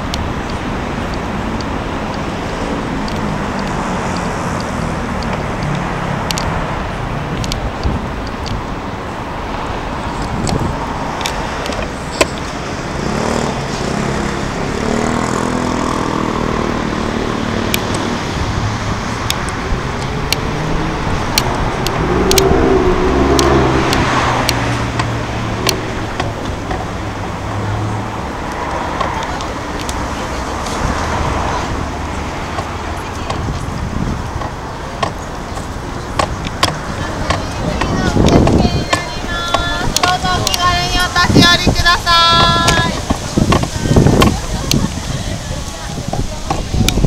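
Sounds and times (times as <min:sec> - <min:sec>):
city road traffic: 0:00.0 - 0:47.0
engine hum: 0:00.0 - 0:47.0
sharp clicks: 0:03.0 - 0:06.5, 0:21.3 - 0:22.5.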